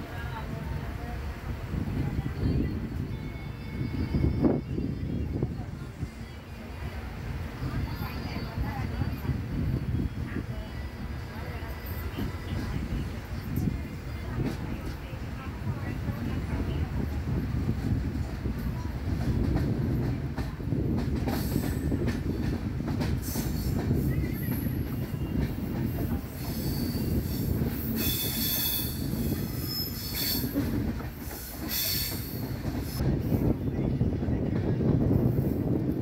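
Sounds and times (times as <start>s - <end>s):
train wheels rumbling on rail: 0.0s - 36.0s
high-pitched wheel squeals: 26.4s - 30.6s.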